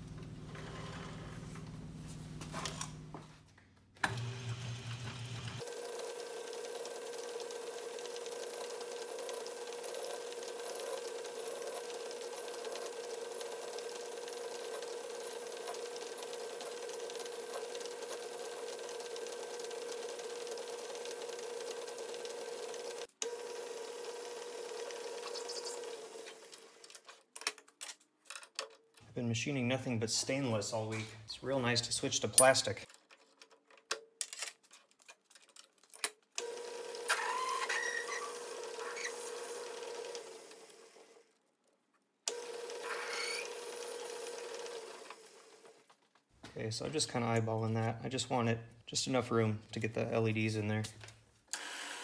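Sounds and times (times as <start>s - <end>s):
metal lathe motor whine: 36.4s - 40.6s, 42.3s - 45.0s.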